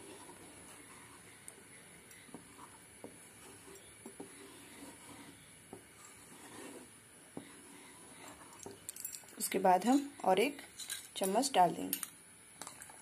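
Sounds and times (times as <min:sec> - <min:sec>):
spatula scraping a pan: 0:00.0 - 0:01.4, 0:02.2 - 0:08.7.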